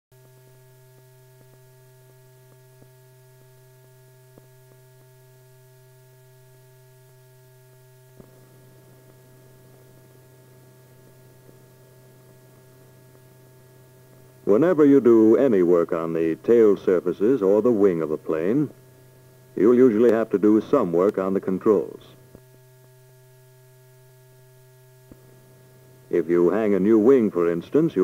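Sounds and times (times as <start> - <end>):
faint electrical hum: 0.2 - 28.0
film soundtrack hiss: 0.2 - 28.0
scattered clicks: 20.0 - 20.3.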